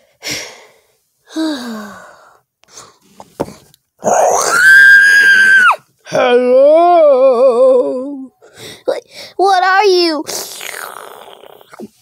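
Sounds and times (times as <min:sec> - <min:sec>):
person screaming: 0:04.1 - 0:07.8.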